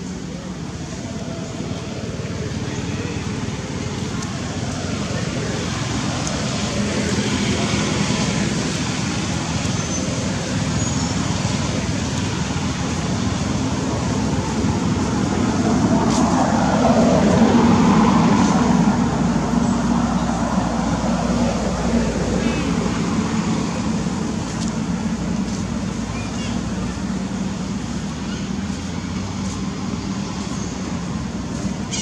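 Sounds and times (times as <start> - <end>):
road traffic noise: 0.0 - 32.0
vehicle passing by: 0.4 - 31.9.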